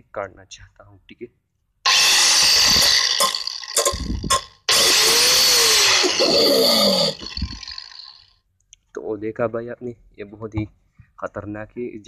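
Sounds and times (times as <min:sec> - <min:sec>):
grinder motor winding down: 0:01.9 - 0:08.2
angle grinder grinding nail: 0:01.9 - 0:08.3.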